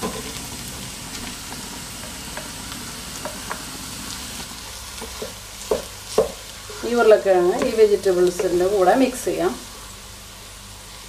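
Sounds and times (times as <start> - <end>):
vegetables sizzling in oil: 0.0 - 11.0
wooden spatula scraping and tapping: 2.0 - 2.6, 5.0 - 8.6.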